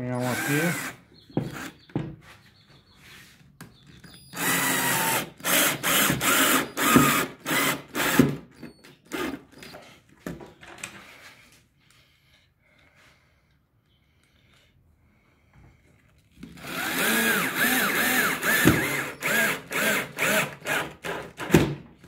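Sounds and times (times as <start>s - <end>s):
cordless drill driving a screw: 0.2s - 1.8s, 4.1s - 9.7s, 16.4s - 21.6s.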